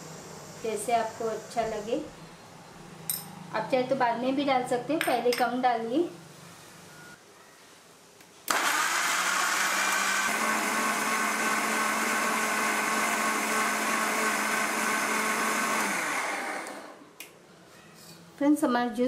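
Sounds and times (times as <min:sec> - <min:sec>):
electric blender running: 0:08.5 - 0:17.0.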